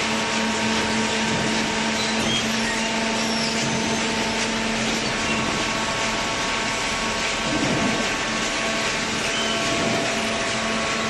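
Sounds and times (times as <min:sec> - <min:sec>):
machine whine: 0:00.0 - 0:11.0.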